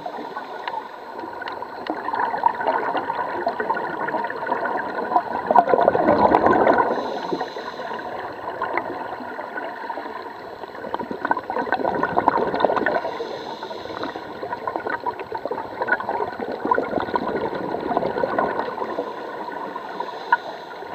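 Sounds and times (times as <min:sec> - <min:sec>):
diver's bubbles gurgling underwater: 0:00.0 - 0:20.0
breathing through a regulator: 0:06.7 - 0:08.5, 0:12.8 - 0:14.8, 0:18.6 - 0:20.9.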